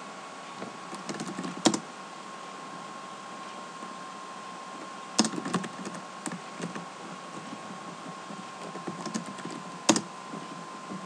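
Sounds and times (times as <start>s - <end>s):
faint electrical hum: 0.0s - 11.0s
keyboard keystrokes: 0.9s - 1.8s, 5.2s - 10.1s.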